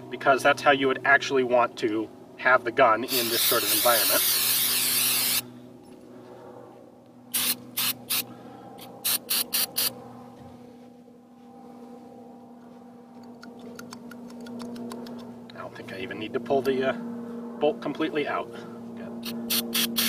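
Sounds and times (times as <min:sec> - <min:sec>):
aerosol can spraying bursts: 0:03.1 - 0:05.4, 0:07.3 - 0:08.2, 0:08.9 - 0:09.9, 0:19.2 - 0:20.0.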